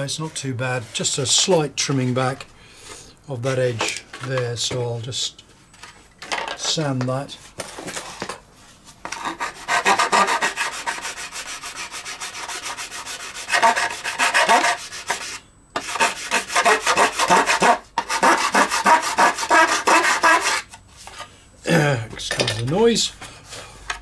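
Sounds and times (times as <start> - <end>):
sandpaper rubbing plastic: 9.2 - 20.7.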